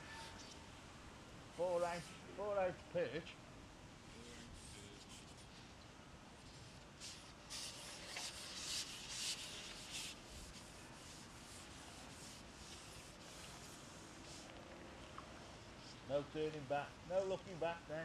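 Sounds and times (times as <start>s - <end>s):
fishing pole sliding through hands: 6.6s - 14.5s.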